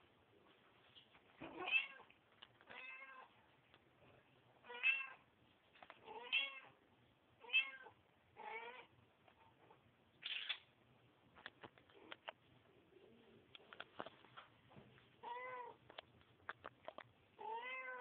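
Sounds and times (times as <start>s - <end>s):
cat meowing: 7.4s - 8.9s, 17.4s - 18.0s.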